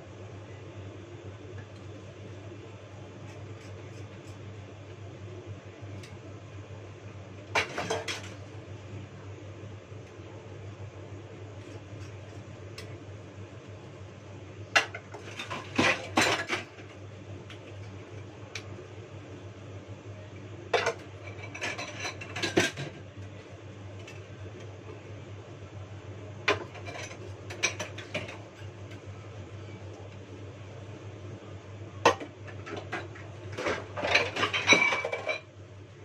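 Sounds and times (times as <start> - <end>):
steady low hum: 0.0 - 36.0
dishes clattering in a sink: 7.5 - 8.4, 14.8 - 16.8, 20.8 - 23.0, 26.5 - 28.5, 32.0 - 35.5.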